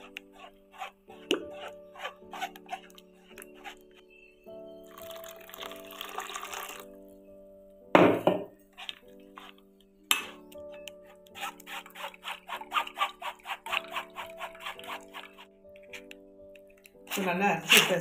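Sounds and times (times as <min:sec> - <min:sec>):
spoon scraping strainer: 0:00.0 - 0:04.0, 0:08.8 - 0:10.5, 0:11.1 - 0:16.0, 0:17.1 - 0:18.0
background music with steady tones: 0:00.0 - 0:18.0.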